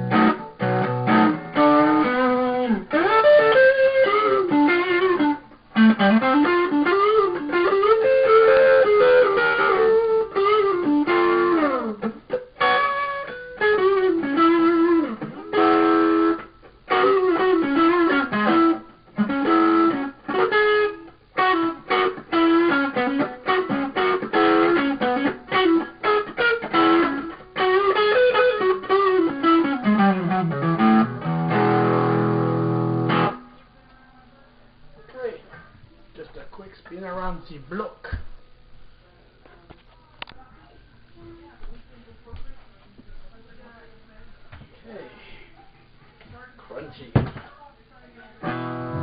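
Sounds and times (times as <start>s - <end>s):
overdriven electric guitar lead: 0.0s - 33.7s, 48.4s - 49.0s.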